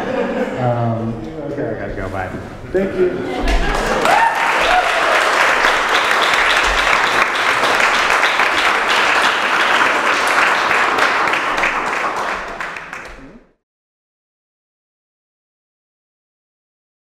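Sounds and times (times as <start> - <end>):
audience applauding: 3.6 - 13.6.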